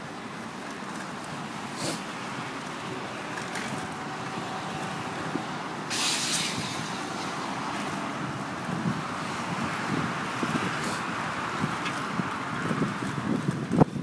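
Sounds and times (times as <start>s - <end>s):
bicycle tyres on path: 0.0s - 14.0s
wind on microphone: 2.8s - 14.0s.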